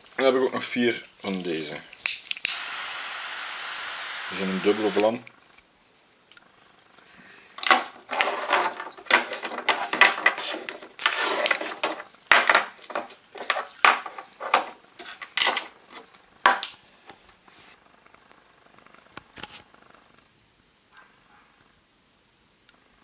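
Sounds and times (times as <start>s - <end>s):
lighters clicking and clattering on wood: 1.3s - 2.7s.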